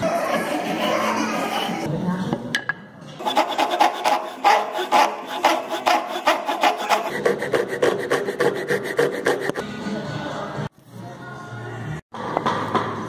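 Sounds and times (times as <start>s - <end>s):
hand saw cutting wood: 3.2s - 9.6s.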